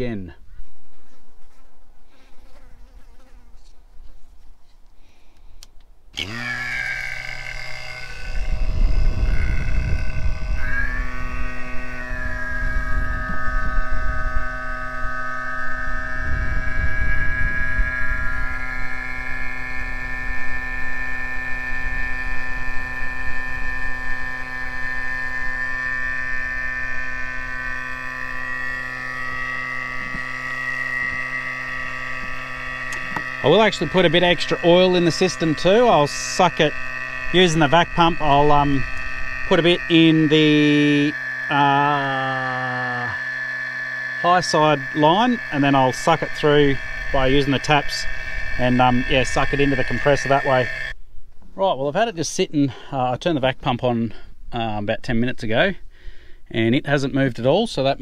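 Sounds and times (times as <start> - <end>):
vacuum pump whine and hum: 6.1 - 51.0.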